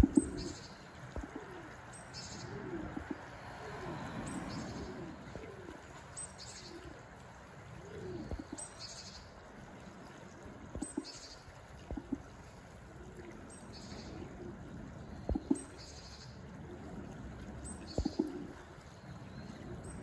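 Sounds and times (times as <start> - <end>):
pigeons cooing: 0.0 - 15.8, 16.4 - 20.0.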